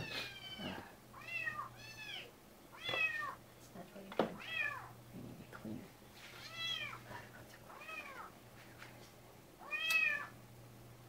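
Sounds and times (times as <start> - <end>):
cat meowing: 0.0 - 3.4, 4.4 - 4.9, 6.4 - 7.0, 7.8 - 8.3, 9.6 - 10.4.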